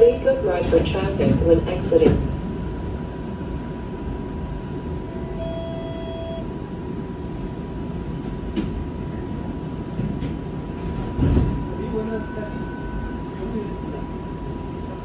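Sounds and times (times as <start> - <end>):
streetcar wheels rumbling: 0.0 - 5.1, 6.5 - 12.6
faint high whine: 3.0 - 7.3, 11.6 - 15.0
short beep-like tone: 5.1 - 6.5.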